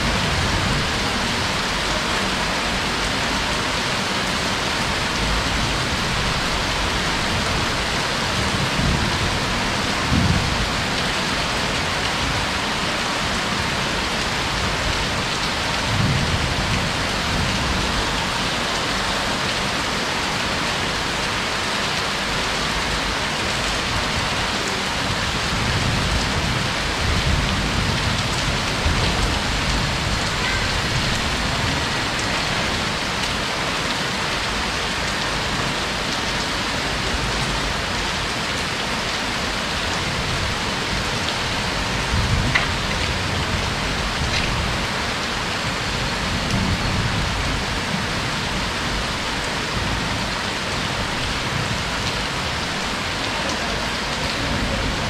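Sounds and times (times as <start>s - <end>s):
heavy rain pouring: 0.0s - 55.0s
thunder rumbling: 4.9s - 12.5s, 14.4s - 19.0s, 25.0s - 33.2s.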